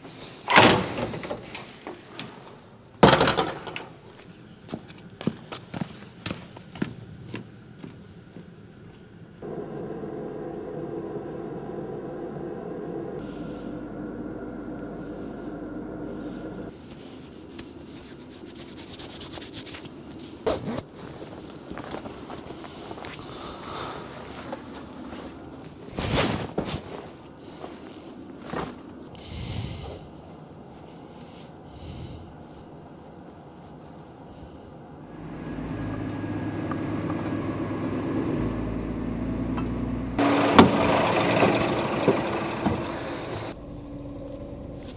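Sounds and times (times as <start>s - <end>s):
truck diesel engine idling: 9.4s - 16.7s, 40.2s - 44.9s.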